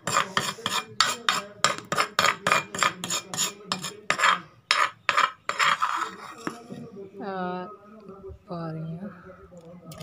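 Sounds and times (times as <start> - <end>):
spoon scraping in clay bowl: 0.0 - 6.9.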